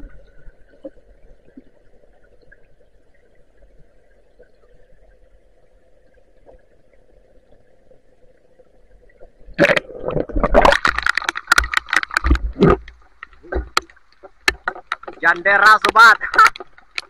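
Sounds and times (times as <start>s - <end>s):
water splashing against microphone: 9.3s - 17.0s.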